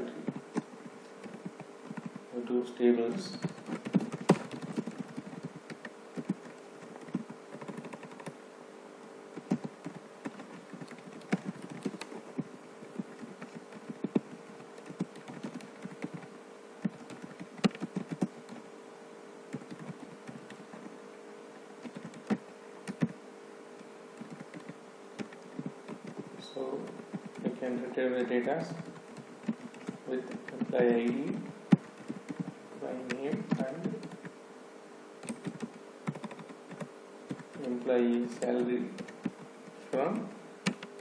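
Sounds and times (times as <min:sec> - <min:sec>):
faint background hum: 0:00.0 - 0:41.0
keyboard key clicks: 0:40.6 - 0:41.0.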